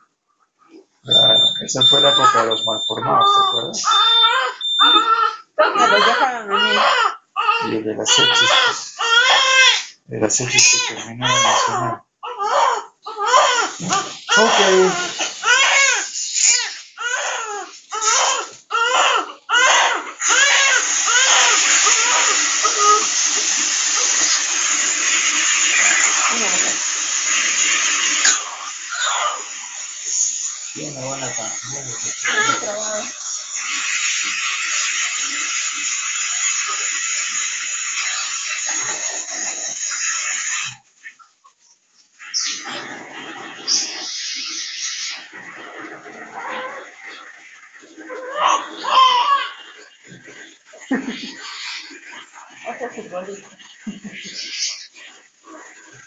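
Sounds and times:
newborn baby crying: 1.1 - 23.2, 28.2 - 29.6, 31.4 - 33.2, 48.1 - 49.8
suction hiss: 13.6 - 18.7, 20.2 - 41.2.

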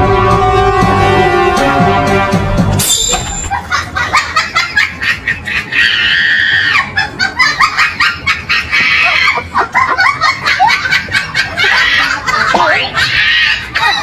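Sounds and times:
laughter: 3.4 - 14.0.

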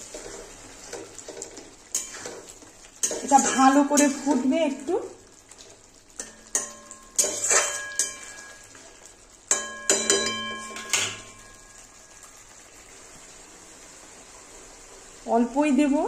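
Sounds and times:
gravy simmering hiss: 0.0 - 16.0
metal spatula clinking on pan: 1.9 - 2.4, 3.0 - 4.5, 6.2 - 8.6, 9.5 - 11.8.

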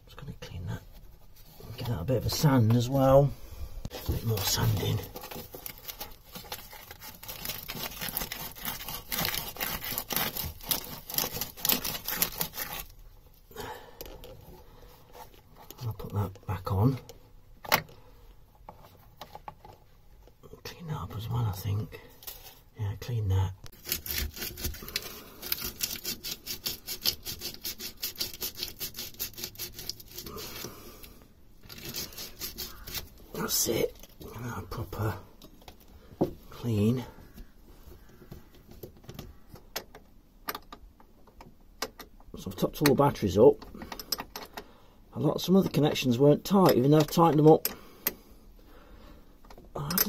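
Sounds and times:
scrubbing and sanding strokes: 23.7 - 30.7, 31.7 - 33.3.

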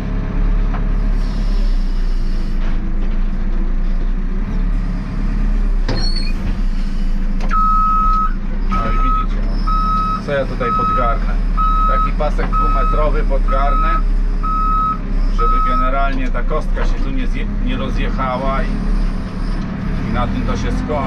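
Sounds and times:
diesel engine running: 0.0 - 21.0
reversing alarm beeping: 7.5 - 16.0.

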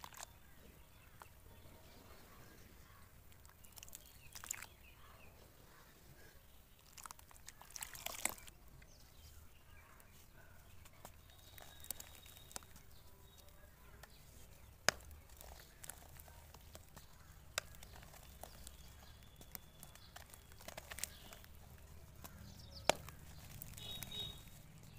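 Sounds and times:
wet squelching and crumbling dirt: 0.0 - 24.9
sharp cracks: 10.8 - 24.9.

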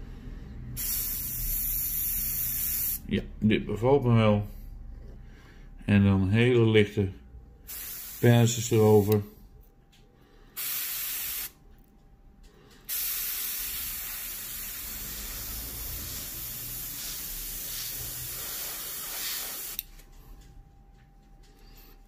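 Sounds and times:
airbrush hissing: 0.8 - 3.0, 7.7 - 9.3, 10.6 - 11.5, 12.9 - 19.8.

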